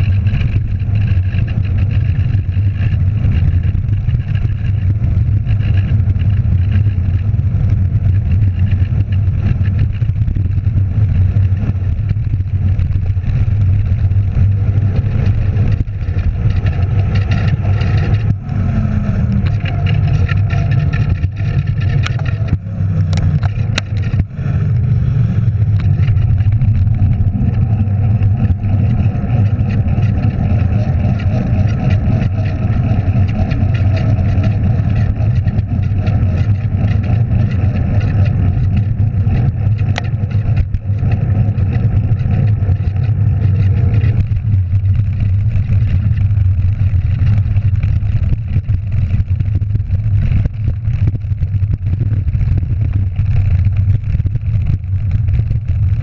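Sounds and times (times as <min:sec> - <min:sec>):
bike tyres rumbling on path: 0:00.0 - 0:56.0
wind rushing over microphone: 0:00.0 - 0:56.0.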